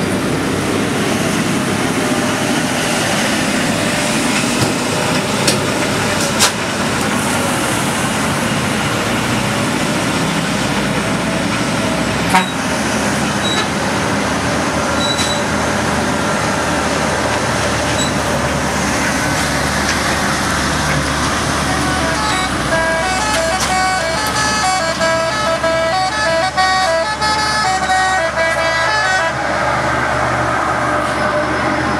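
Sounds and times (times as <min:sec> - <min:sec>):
truck diesel engine under load: 0:00.0 - 0:31.9
multi-tone horn melody: 0:12.3 - 0:12.6, 0:21.4 - 0:29.6.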